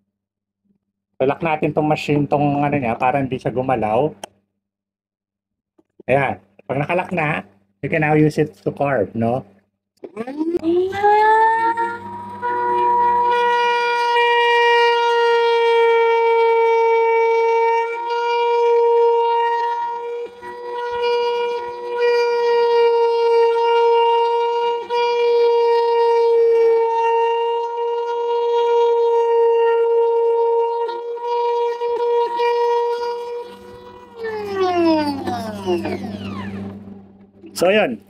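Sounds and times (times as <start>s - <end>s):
rotary tool whining: 10.0s - 15.5s, 29.9s - 37.8s.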